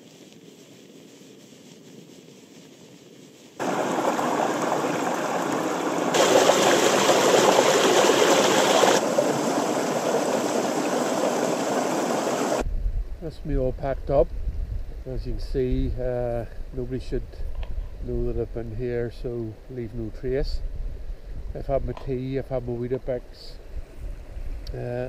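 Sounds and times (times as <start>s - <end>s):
stream rushing over boulders: 3.6s - 12.6s.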